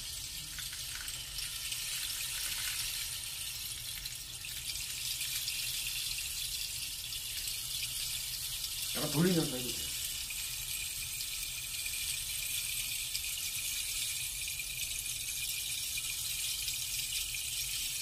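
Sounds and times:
rain stick beads trickling: 0.0 - 18.0.

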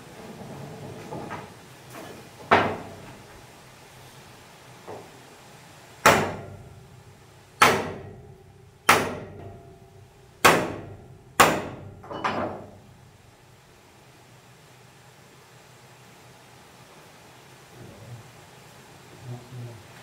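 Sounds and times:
hammer blows ringing: 6.0 - 6.6, 7.6 - 12.3.

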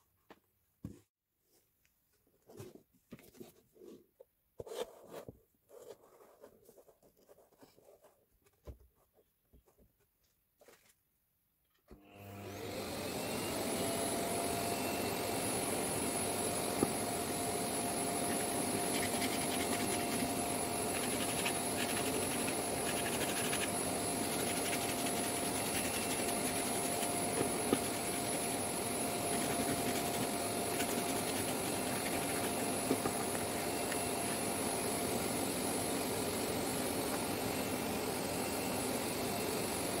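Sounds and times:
vacuum cleaner whining: 11.9 - 40.0
sanding block knocking on table: 18.3 - 20.3, 20.9 - 23.7, 24.3 - 28.5, 29.3 - 34.0.

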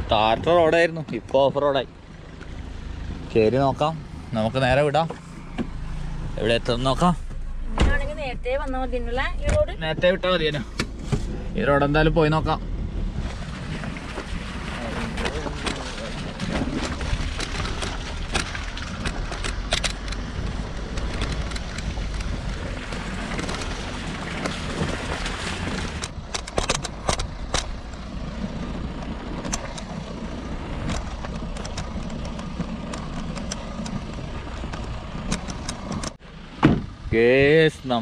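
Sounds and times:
vehicle engine and road rumble: 0.0 - 38.0
stones knocking and rattling: 13.7 - 28.1, 30.8 - 36.2.

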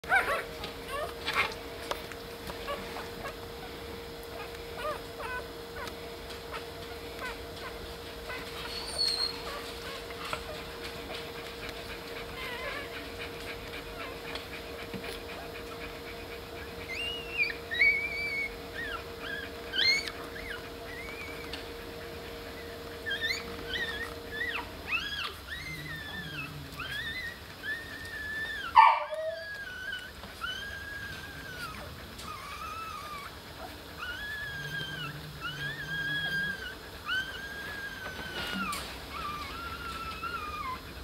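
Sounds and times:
steady low hum: 0.0 - 41.0
puppies squeaking and whimpering: 0.1 - 41.0.

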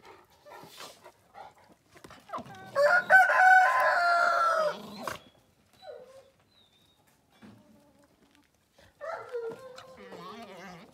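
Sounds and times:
dogs scuffling and panting: 0.0 - 2.8
rooster crowing: 2.8 - 4.8.

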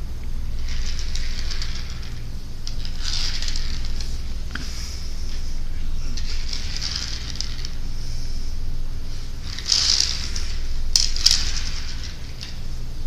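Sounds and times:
toy car rolling on tiles: 0.5 - 4.8, 6.2 - 7.9, 9.2 - 12.8.

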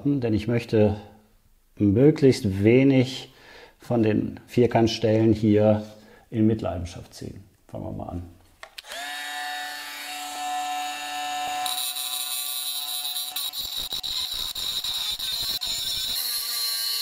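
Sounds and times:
angle grinder cutting steel: 8.8 - 17.0.

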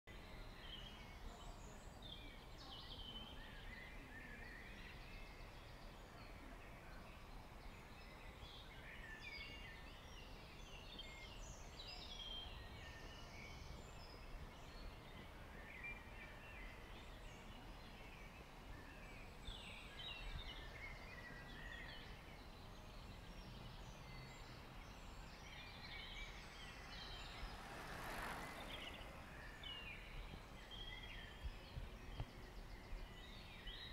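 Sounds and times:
small birds chirping and trilling: 0.1 - 33.9
brief rushing noise: 26.7 - 30.4.

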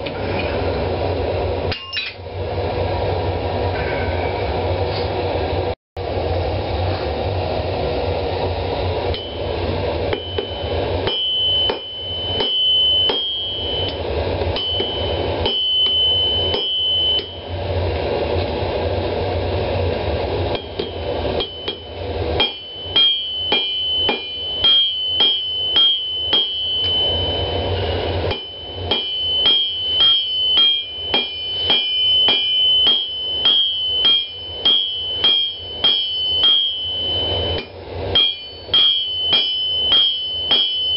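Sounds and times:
hammer striking anvil: 1.7 - 2.2, 9.1 - 9.5, 10.1 - 17.4, 20.5 - 27.2, 28.2 - 40.9
ringing anvil tone: 1.7 - 2.3, 9.1 - 17.5, 20.5 - 40.9
forge roar: 3.6 - 4.8.

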